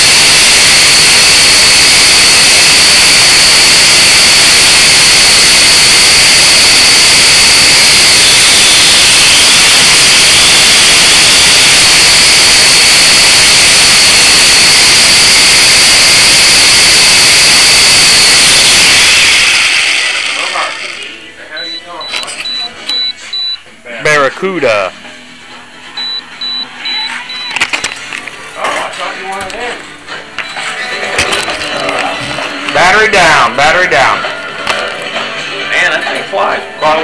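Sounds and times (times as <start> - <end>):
quadcopter motors whining: 0.0 - 22.7.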